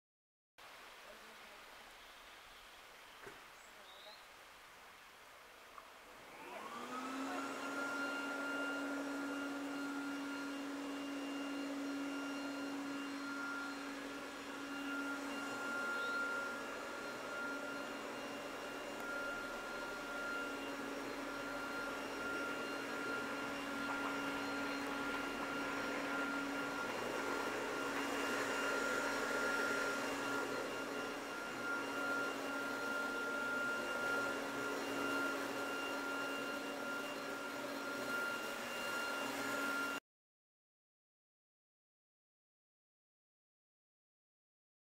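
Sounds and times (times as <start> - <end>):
motor whining: 6.0 - 40.0.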